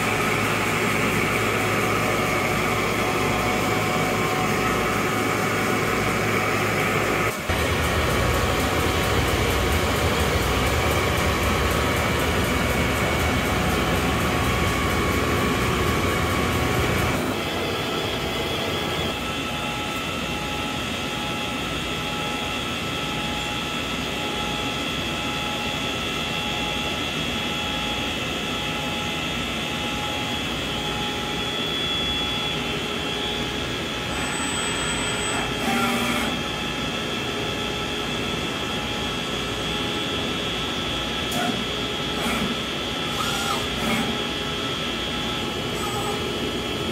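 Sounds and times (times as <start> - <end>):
tool grinder machine hum: 0.0 - 19.5, 33.7 - 37.1, 41.1 - 46.9
whine tones from spindle and fans: 0.0 - 46.9.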